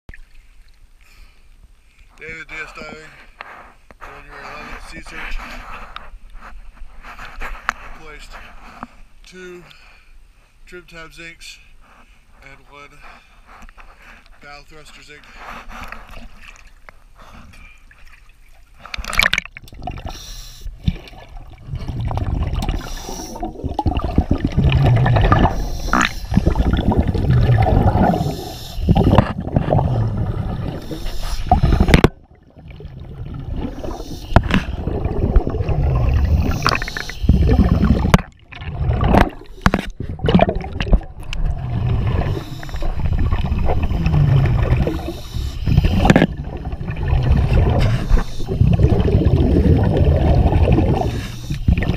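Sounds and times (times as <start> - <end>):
underwater bubbling: 17.8 - 51.9.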